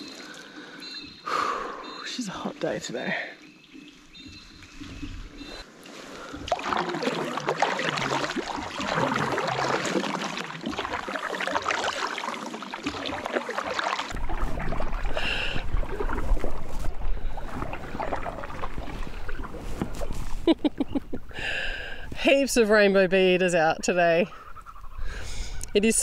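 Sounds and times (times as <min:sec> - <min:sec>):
paddle splashing water: 0:02.6 - 0:22.8
wind on microphone: 0:14.1 - 0:22.6.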